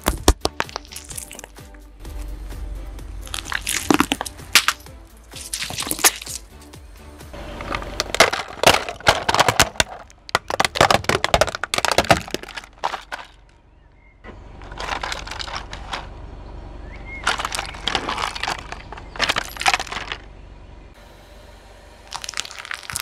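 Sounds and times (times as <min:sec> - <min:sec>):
tyre crunching objects: 0:00.0 - 0:02.3, 0:03.2 - 0:06.6, 0:07.4 - 0:13.5, 0:14.6 - 0:16.1, 0:17.1 - 0:20.3, 0:22.1 - 0:23.0
sharp cracks: 0:03.3 - 0:06.5, 0:08.0 - 0:13.6.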